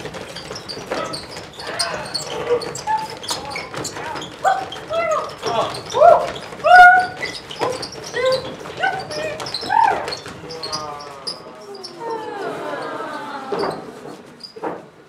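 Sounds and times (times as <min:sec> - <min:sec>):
people yelping like dogs: 0:05.9 - 0:07.2, 0:11.4 - 0:14.4.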